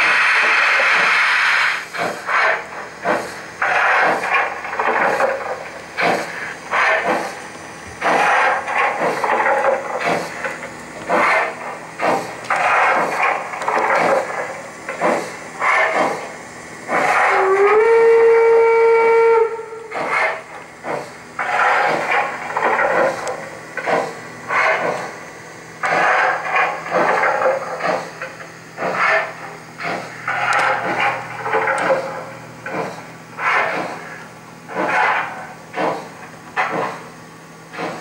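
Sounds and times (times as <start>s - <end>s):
hissing steam chuffs: 0.0s - 38.0s
steam hissing: 0.0s - 38.0s
steam whistle: 17.0s - 20.5s.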